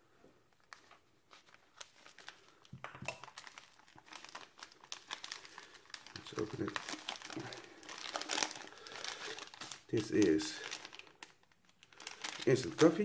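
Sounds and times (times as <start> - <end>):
foil sachets crinkling: 0.6 - 13.0.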